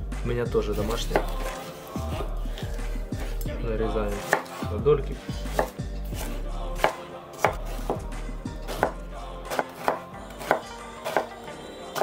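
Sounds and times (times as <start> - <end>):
knife chopping on wooden board: 0.7 - 3.5, 4.2 - 4.7, 5.4 - 11.4.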